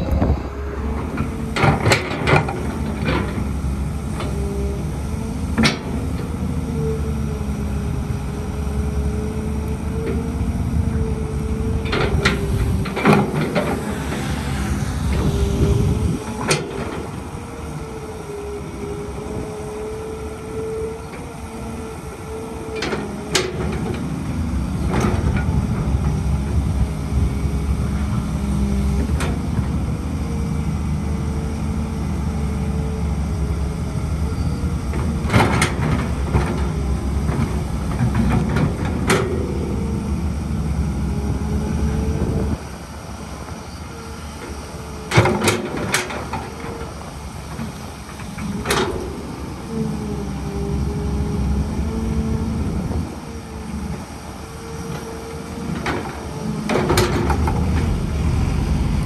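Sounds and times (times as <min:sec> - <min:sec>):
construction machinery diesel engine: 0:00.0 - 0:59.0
steady machine whine: 0:09.9 - 0:22.4.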